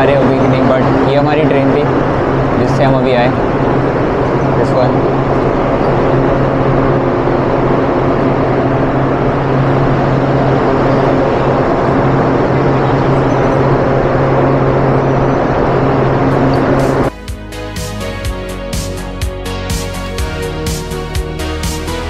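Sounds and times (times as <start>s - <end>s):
constant background noise: 0.0s - 17.1s
train loud steady hum: 0.0s - 22.0s.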